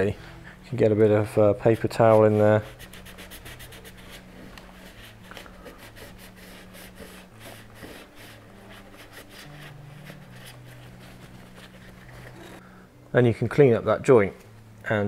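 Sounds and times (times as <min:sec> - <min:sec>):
paper towel wiping wood: 0:01.6 - 0:12.0.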